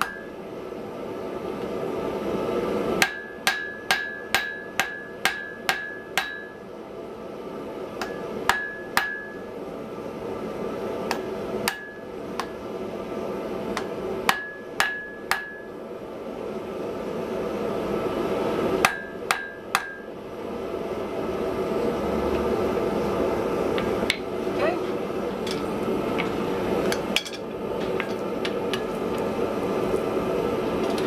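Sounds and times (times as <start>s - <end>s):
hammer striking iron on anvil: 0.0s - 0.3s, 3.0s - 6.6s, 8.0s - 9.4s, 11.1s - 12.6s, 13.8s - 15.7s, 18.8s - 20.1s.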